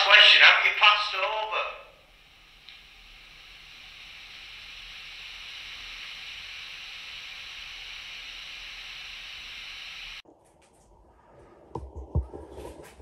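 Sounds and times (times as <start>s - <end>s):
recorder playback hiss: 0.0s - 10.2s.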